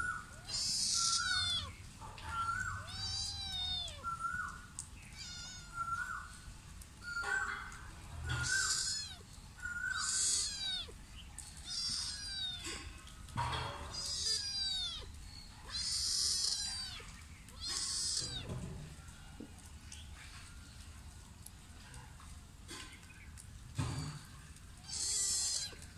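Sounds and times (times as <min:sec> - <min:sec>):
cat meowing: 0:00.3 - 0:06.2, 0:08.4 - 0:11.0, 0:11.6 - 0:12.9, 0:13.7 - 0:18.6, 0:24.8 - 0:25.9.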